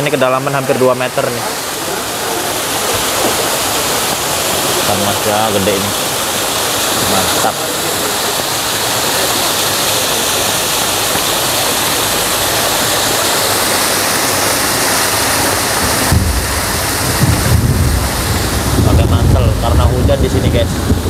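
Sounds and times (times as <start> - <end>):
water rushing: 0.0 - 21.0
wind buffeting microphone: 14.3 - 21.0.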